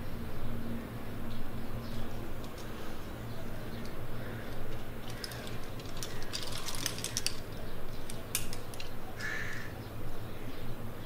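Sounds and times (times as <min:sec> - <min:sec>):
low steady hum: 0:00.0 - 0:11.0
climbing gear ratchet clicks: 0:04.7 - 0:08.9.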